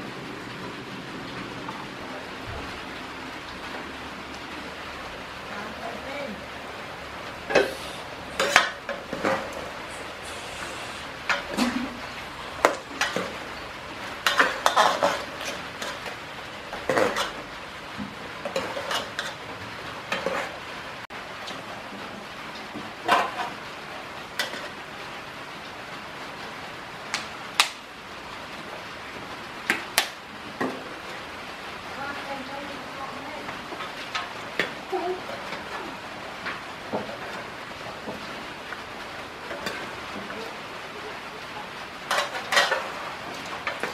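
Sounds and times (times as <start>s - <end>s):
steady background hiss: 0.0s - 43.9s.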